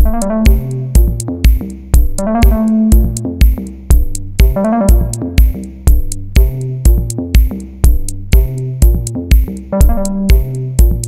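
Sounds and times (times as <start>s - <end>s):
synth melody: 0.0s - 1.3s, 2.1s - 3.5s, 4.4s - 5.7s, 9.7s - 10.8s
drum machine beat: 0.0s - 11.0s.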